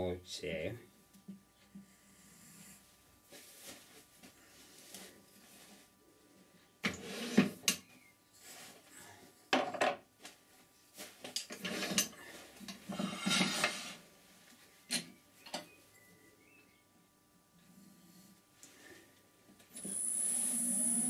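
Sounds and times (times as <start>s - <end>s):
metal sliding scrapes: 7.0s - 7.6s, 11.6s - 12.1s, 13.0s - 14.0s.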